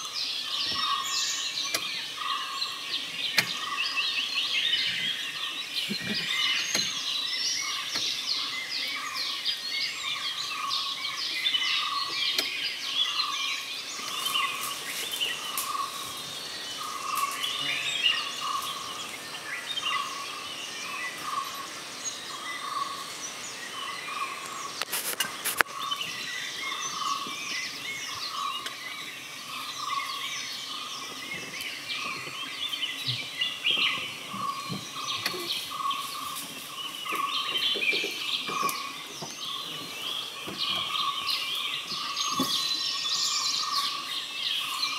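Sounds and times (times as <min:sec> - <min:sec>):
birds chirping: 0:00.0 - 0:44.9.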